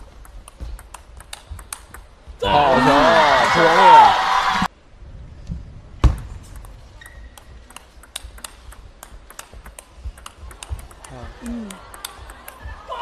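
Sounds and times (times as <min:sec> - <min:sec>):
table tennis ball clicking: 0:00.0 - 0:02.2, 0:06.5 - 0:12.7.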